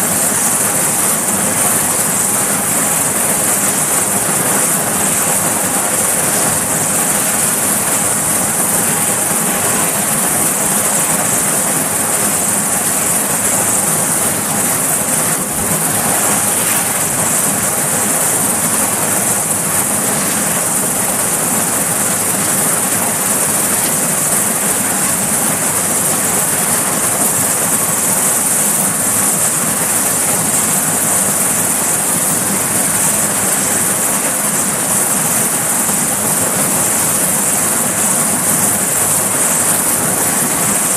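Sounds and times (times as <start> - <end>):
helicopter engines and rotors running: 0.0 - 40.9.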